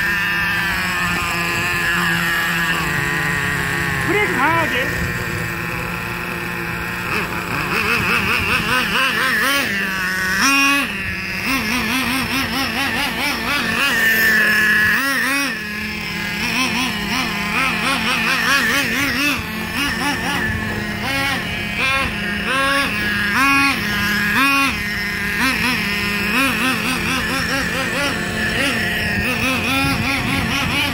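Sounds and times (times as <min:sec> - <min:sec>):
small engine revving: 0:00.0 - 0:30.9.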